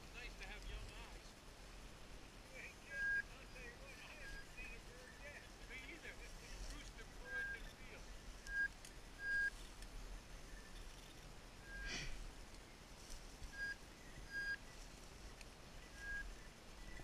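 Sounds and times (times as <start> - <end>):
rustle: 0.0 - 17.0
short high beeps: 8.5 - 9.5, 11.7 - 11.9, 13.6 - 14.6.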